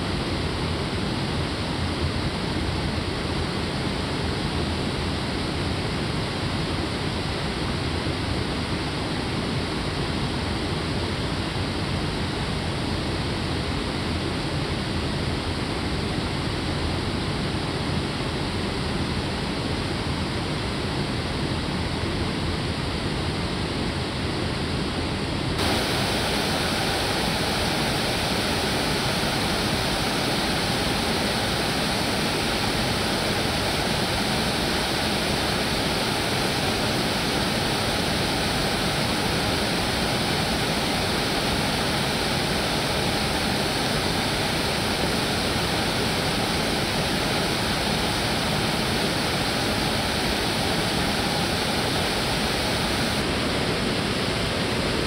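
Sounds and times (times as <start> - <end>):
waterfall rushing: 25.6 - 53.5.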